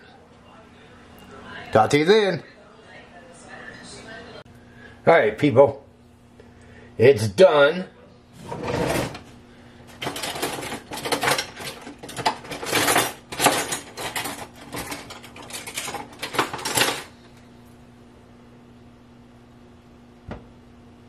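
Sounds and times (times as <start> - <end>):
metal cutlery clattering: 10.0 - 17.1.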